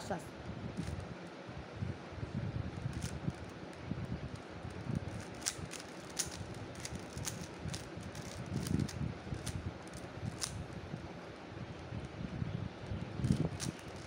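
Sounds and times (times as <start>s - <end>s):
puzzle cube clicking: 5.1s - 9.6s, 13.2s - 14.0s.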